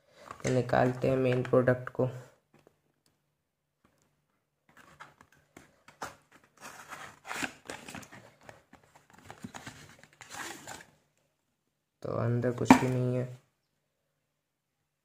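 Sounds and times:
cardboard scraping and rustling: 6.0s - 8.2s, 8.8s - 10.9s.

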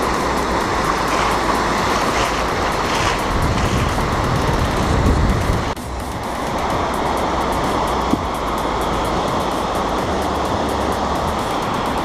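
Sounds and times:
surf breaking on beach: 0.0s - 5.8s
wind rumble on microphone: 0.0s - 12.0s.

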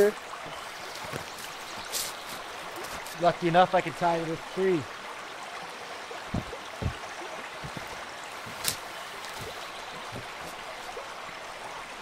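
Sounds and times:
stream water flowing: 0.0s - 12.0s
footsteps on forest floor: 0.4s - 3.3s, 6.3s - 11.0s.

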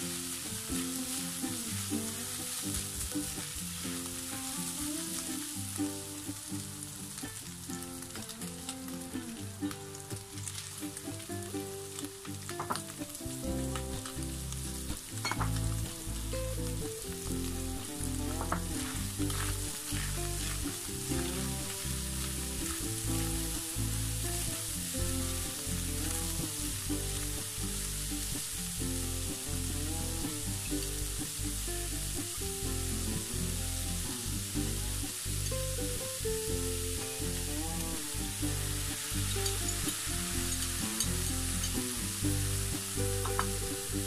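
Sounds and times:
meat sizzling in a frying pan: 0.0s - 44.0s
soft background music: 0.0s - 44.0s.

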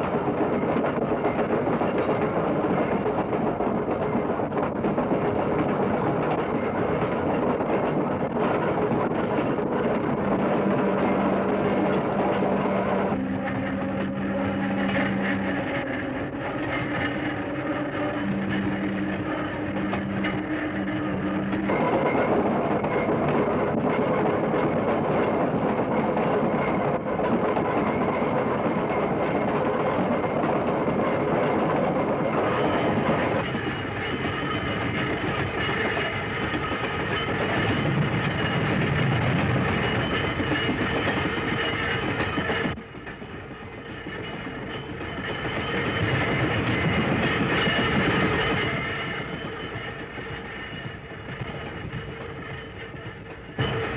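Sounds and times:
electric railcar running on rails: 0.0s - 53.9s.

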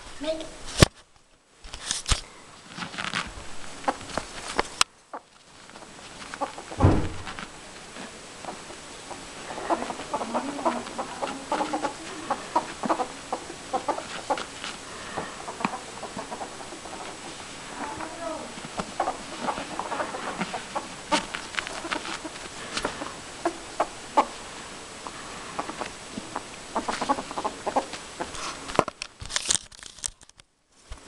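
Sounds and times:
loud thump: 6.8s - 7.5s.

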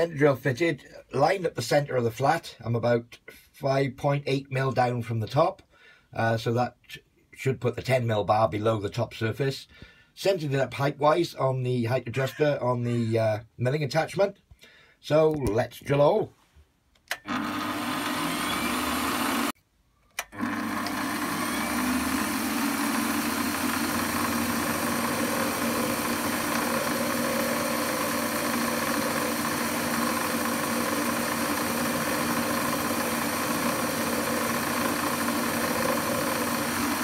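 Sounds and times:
lathe running: 17.3s - 19.5s, 20.2s - 37.0s.

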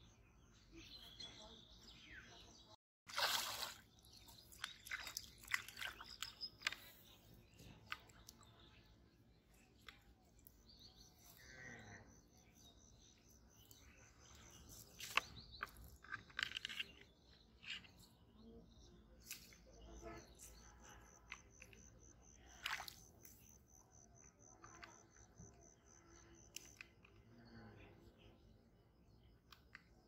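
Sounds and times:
faint bird chirps: 4.0s - 30.0s.

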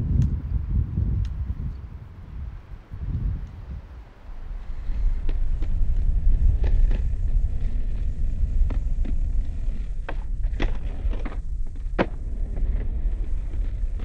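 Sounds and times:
wind on microphone: 0.0s - 14.0s
skateboard clacking on concrete: 5.1s - 14.0s.

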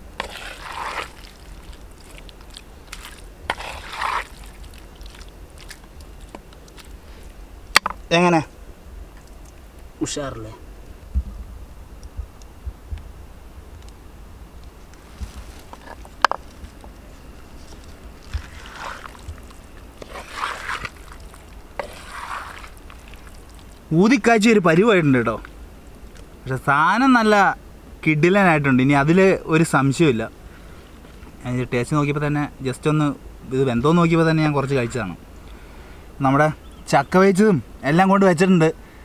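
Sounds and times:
wet scraping in pot: 0.0s - 7.2s, 15.2s - 23.9s.

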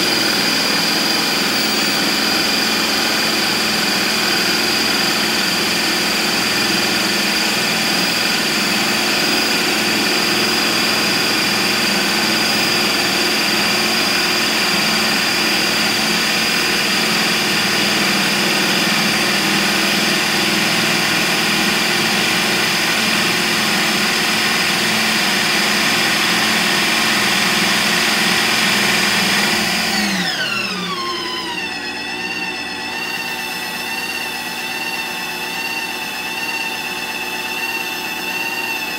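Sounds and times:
ice cream maker motor whining: 0.0s - 38.9s.

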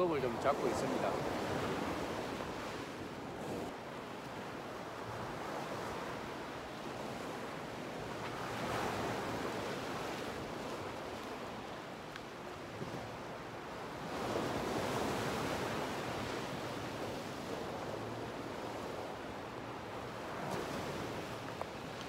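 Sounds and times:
waves breaking on rocks: 0.0s - 2.9s, 19.7s - 22.0s.

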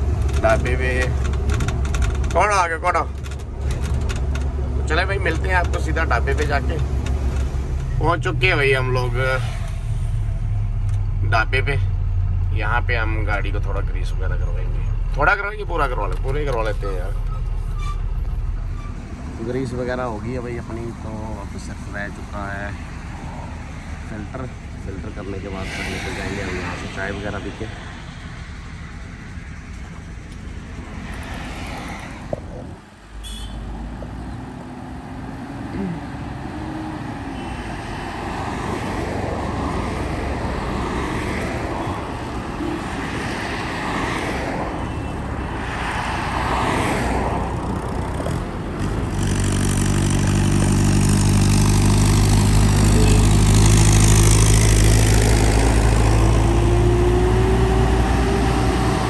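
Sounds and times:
road traffic passing: 0.0s - 59.0s
truck diesel engine pulling away: 48.3s - 59.0s.

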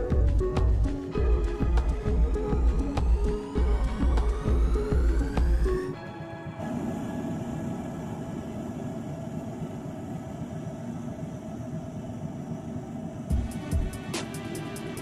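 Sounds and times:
music with a beat: 0.0s - 6.6s, 13.3s - 15.0s.

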